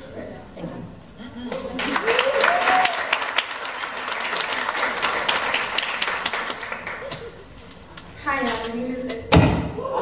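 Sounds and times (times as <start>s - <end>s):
audience applauding: 1.7s - 7.4s.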